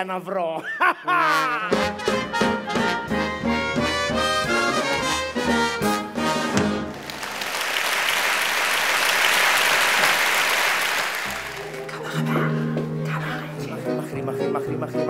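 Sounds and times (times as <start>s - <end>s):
live show band music: 1.7s - 15.0s
audience applauding: 6.8s - 12.0s.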